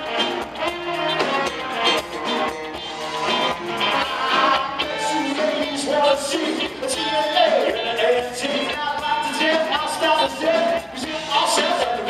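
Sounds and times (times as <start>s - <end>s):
drum beat: 0.0s - 12.0s
rock band playing: 0.0s - 12.0s
man singing: 3.8s - 12.0s.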